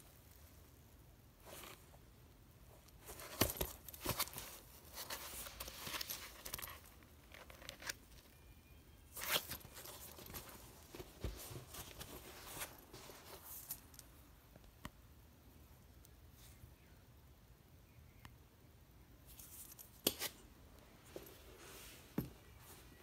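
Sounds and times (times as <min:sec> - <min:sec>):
leather handbag rustling: 0:03.0 - 0:08.0, 0:09.2 - 0:14.1.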